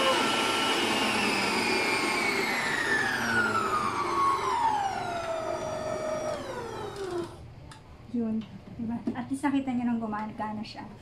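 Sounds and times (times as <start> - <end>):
stand mixer motor whining: 0.0 - 7.4.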